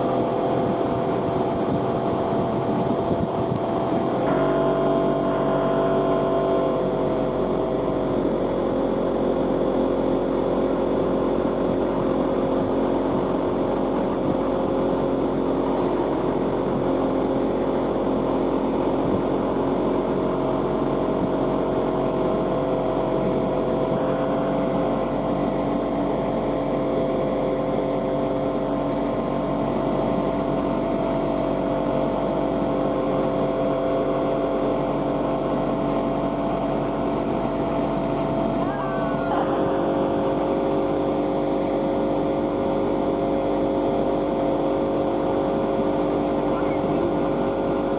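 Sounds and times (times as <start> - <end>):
outboard motor running: 0.0 - 47.9.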